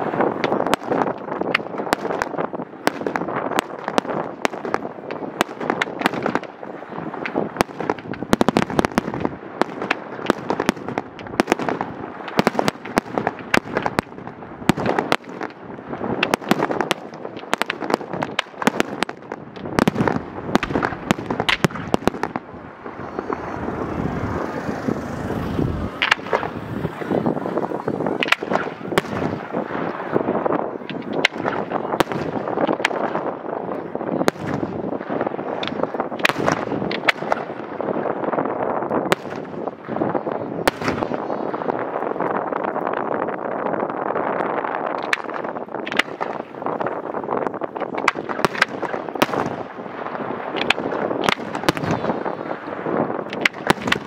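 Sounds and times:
fireworks bangs and crackling: 0:00.0 - 0:54.0
rushing noise: 0:20.4 - 0:30.3.

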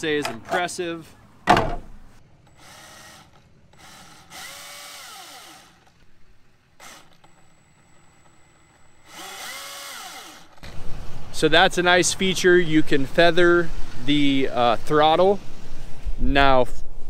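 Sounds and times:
electric chainsaw revving: 0:02.5 - 0:06.0, 0:06.8 - 0:10.8.

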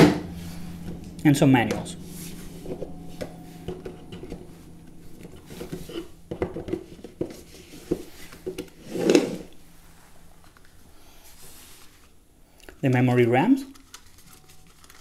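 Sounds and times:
loud knock of unit set down: 0:00.0 - 0:01.0.

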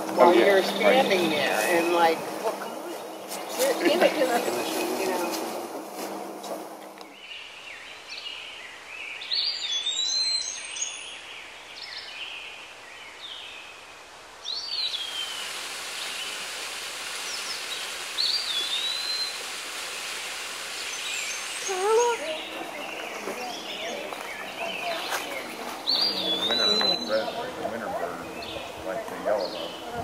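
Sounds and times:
songbirds chirping and whistling: 0:06.9 - 0:16.3, 0:17.2 - 0:19.4, 0:20.8 - 0:30.0
small waterfall rushing: 0:13.6 - 0:29.0.

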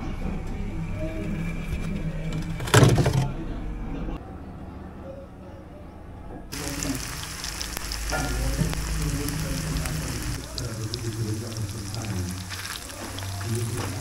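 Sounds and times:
battered chicken frying in oil: 0:06.5 - 0:14.0.

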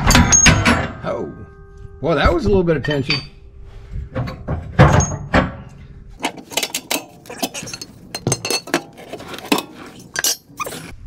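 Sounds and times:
metal tools clinking and knocking: 0:00.0 - 0:01.2, 0:02.8 - 0:03.4, 0:04.2 - 0:10.9.

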